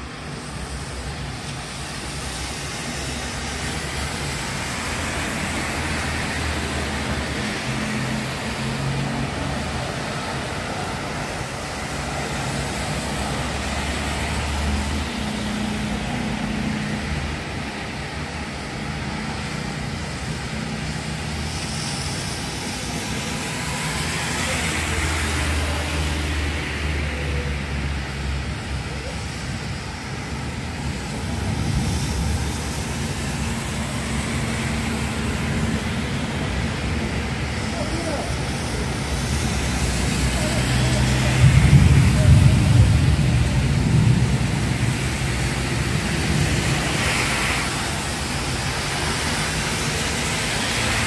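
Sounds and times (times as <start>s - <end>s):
rain hissing: 0.0s - 51.0s
tyres on wet road: 0.0s - 51.0s
low rumbles: 41.0s - 47.0s.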